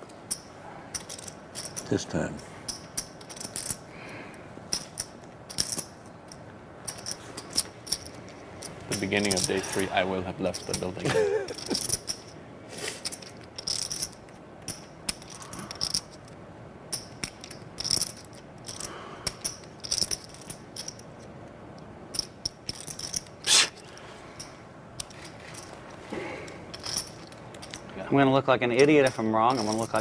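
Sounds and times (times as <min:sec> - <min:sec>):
poker chips clicking: 0:11.5 - 0:12.3, 0:12.9 - 0:16.2.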